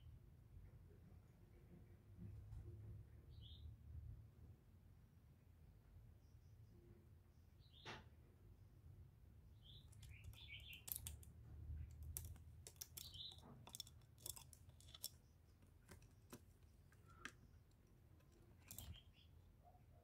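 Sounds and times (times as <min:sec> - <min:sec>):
bird clicks and taps in cage: 0:09.9 - 0:11.3.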